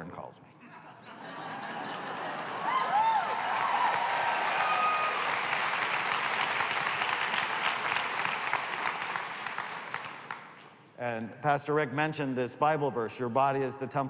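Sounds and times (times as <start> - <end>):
people cheering: 2.0 - 8.8
audience clapping: 2.5 - 10.8.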